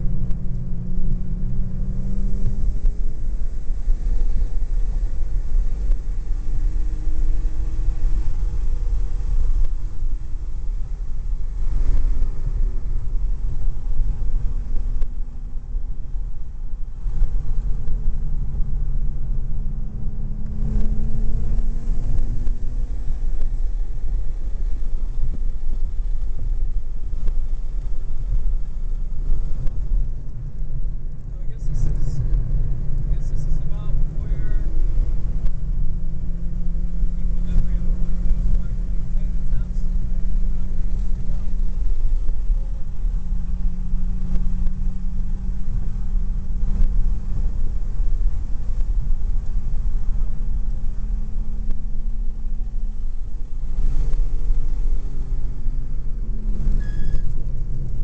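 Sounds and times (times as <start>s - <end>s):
car engine at speed: 0.0s - 58.0s
wind and road noise: 0.0s - 58.0s.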